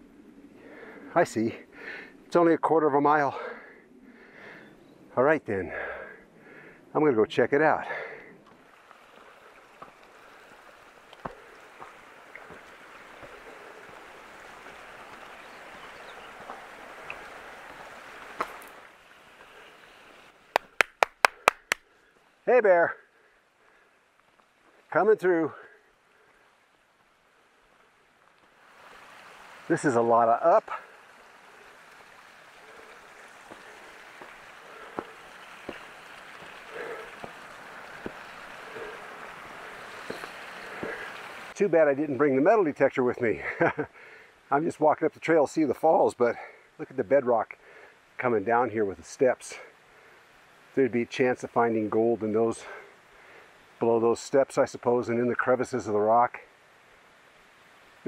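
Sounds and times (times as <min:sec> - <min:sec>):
creek water rushing: 0:05.6 - 0:58.0
footsteps on rocky trail: 0:08.4 - 0:20.8, 0:32.7 - 0:41.2.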